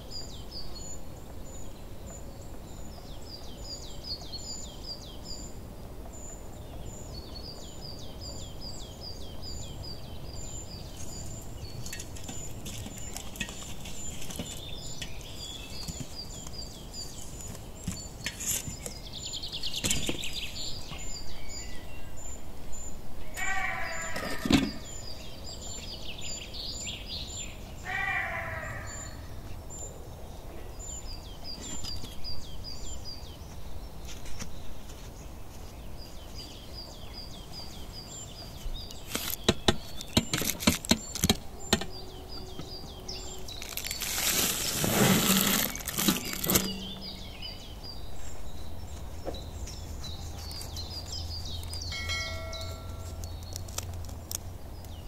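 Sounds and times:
small birds chirping: 0:00.0 - 0:55.0
noisy rustling: 0:05.0 - 0:21.3, 0:30.8 - 0:55.0.

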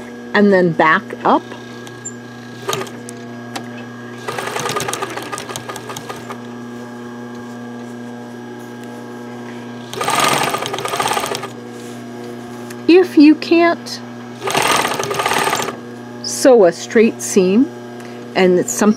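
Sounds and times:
sewing machine hum: 0:01.3 - 0:03.3, 0:04.1 - 0:06.5, 0:09.8 - 0:11.6, 0:14.3 - 0:15.8
sewing machine stitching: 0:01.4 - 0:03.2, 0:04.2 - 0:06.4, 0:09.8 - 0:11.5, 0:14.4 - 0:15.8.

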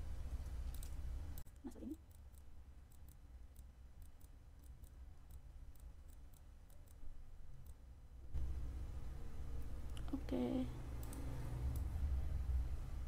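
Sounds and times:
low steady hum: 0:00.0 - 0:13.0
computer mouse clicks: 0:00.6 - 0:07.8, 0:11.0 - 0:11.9.

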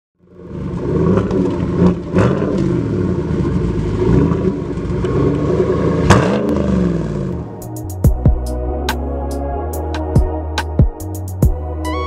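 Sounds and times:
engine revving through exhaust: 0:00.3 - 0:07.8.

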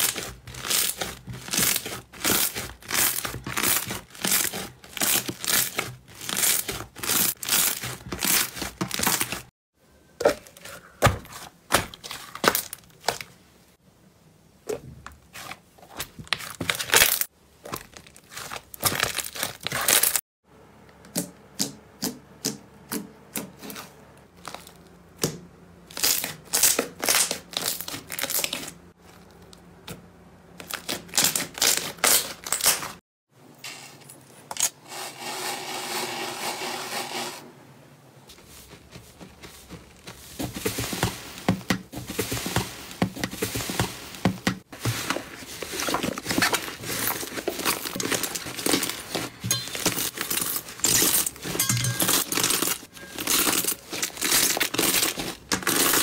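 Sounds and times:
slime crackling and popping: 0:00.0 - 0:09.5.

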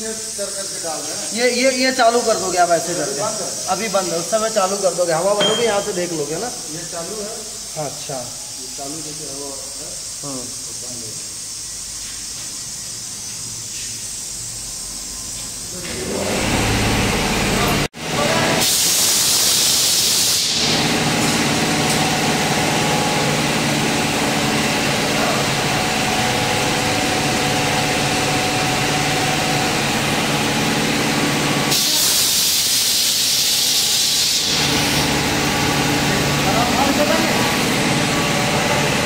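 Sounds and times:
steady machine hum: 0:00.0 - 0:12.0, 0:20.8 - 0:31.8, 0:34.4 - 0:39.0
compressed air hissing: 0:00.0 - 0:15.8, 0:18.6 - 0:22.0, 0:28.7 - 0:38.8.

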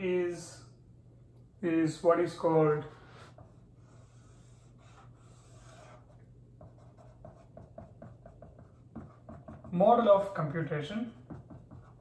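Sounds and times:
marker writing on whiteboard: 0:03.2 - 0:12.0.

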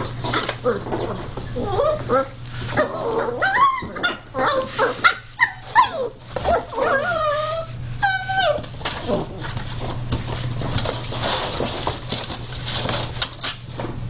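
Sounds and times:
scuffling: 0:00.0 - 0:14.0
puppies yipping and whining: 0:00.1 - 0:09.9.

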